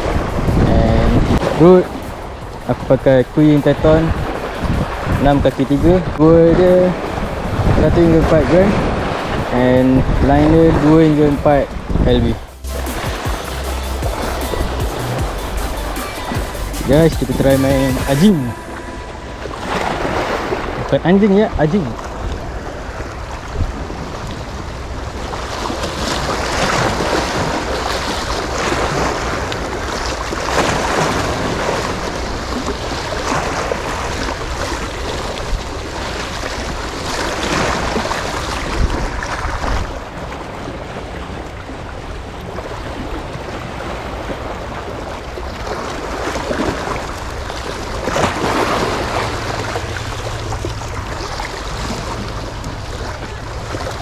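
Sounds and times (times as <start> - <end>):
wind buffeting microphone: 0.0 - 13.4, 16.3 - 54.0
sea waves washing: 0.0 - 54.0.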